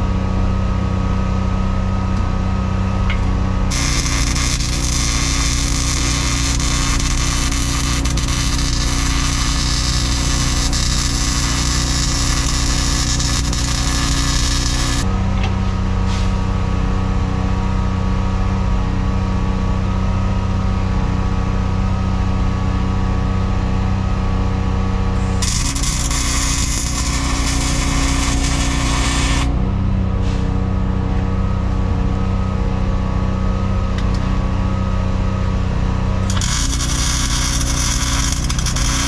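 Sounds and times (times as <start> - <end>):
steady machine drone: 0.0 - 39.0
welder arc crackling and hissing: 3.7 - 15.1, 25.2 - 29.6, 36.2 - 39.0.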